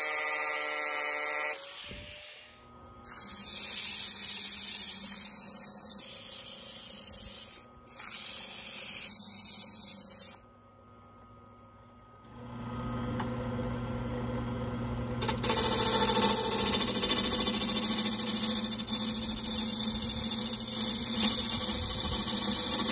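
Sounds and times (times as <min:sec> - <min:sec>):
sanding disc hissing on wood: 0:06.8 - 0:10.4
lathe humming: 0:15.2 - 0:22.9.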